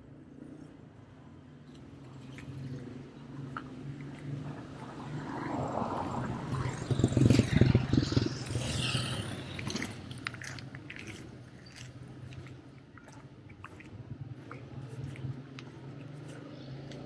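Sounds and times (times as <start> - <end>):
motorcycle engine passing: 4.2 - 10.7.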